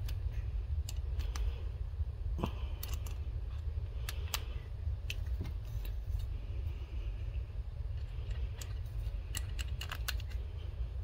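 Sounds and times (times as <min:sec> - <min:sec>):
low hum: 0:00.0 - 0:11.0
screwdriver bit clicking and scraping: 0:08.0 - 0:10.4.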